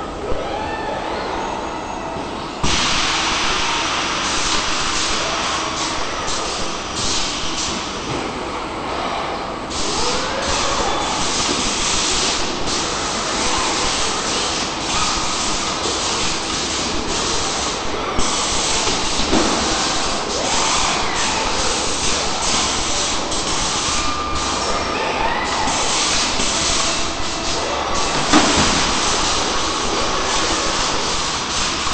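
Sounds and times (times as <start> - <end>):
welding robot machine hiss: 9.7 - 24.8, 25.4 - 31.9.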